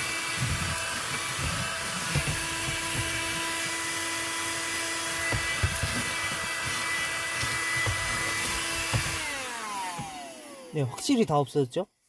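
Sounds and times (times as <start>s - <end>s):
car vacuum cleaner whining: 0.0s - 10.9s
nozzle knocking on floor: 1.4s - 3.6s, 5.2s - 6.5s, 7.4s - 9.2s.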